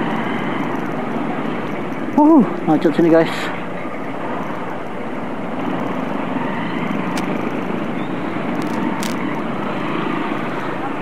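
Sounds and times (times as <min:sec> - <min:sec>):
road and wind noise: 0:00.0 - 0:11.0.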